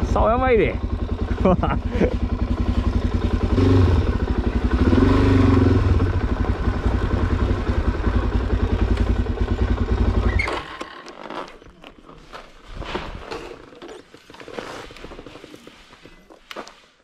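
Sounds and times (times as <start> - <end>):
motorcycle engine running: 0.0 - 10.7.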